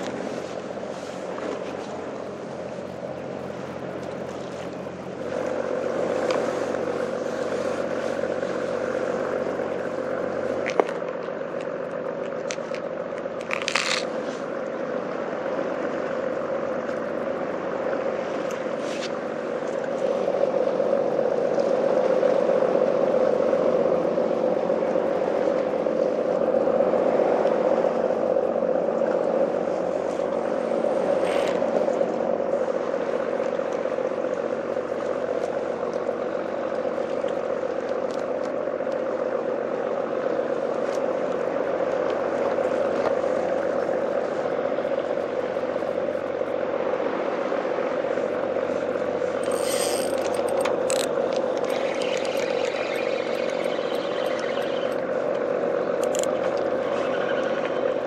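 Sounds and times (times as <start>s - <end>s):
outdoor droning background: 0.0s - 58.0s
fishing tackle clicks and scrapes: 10.6s - 14.3s, 31.2s - 31.7s, 49.3s - 54.4s, 56.0s - 56.4s.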